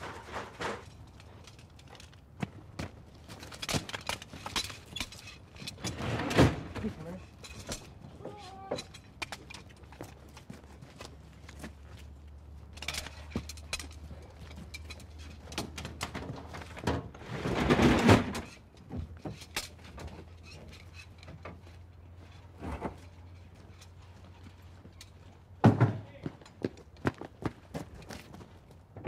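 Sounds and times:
clanks of handled equipment: 0.0 - 2.3, 3.2 - 10.5, 12.6 - 17.0, 18.3 - 25.4.

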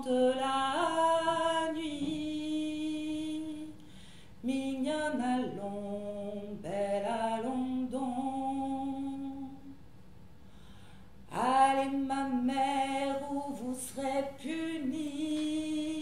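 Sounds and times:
woman singing unaccompanied: 0.0 - 3.8, 4.4 - 9.8, 11.3 - 16.0.

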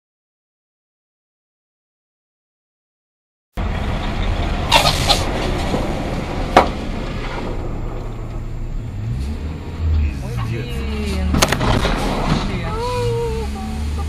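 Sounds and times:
vehicle engine and road noise: 3.6 - 14.0.

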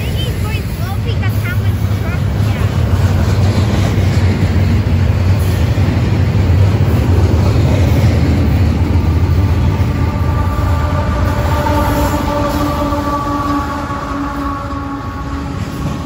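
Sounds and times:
diesel locomotive engine whine: 0.0 - 16.0
train wheels rumbling on rails: 0.0 - 16.0.

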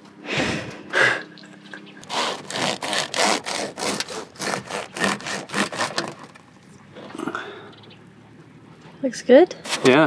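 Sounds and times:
bread knife sawing through loaf: 2.0 - 6.3.

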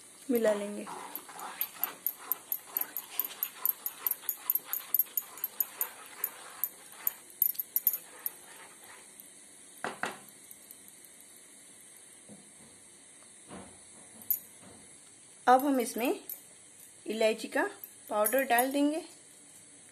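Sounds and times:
spatula scraping metal pan: 0.8 - 7.3, 7.9 - 9.1.

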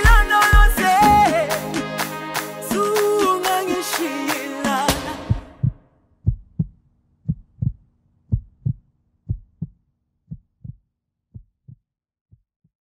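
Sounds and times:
heartbeat thumps: 5.2 - 12.5.

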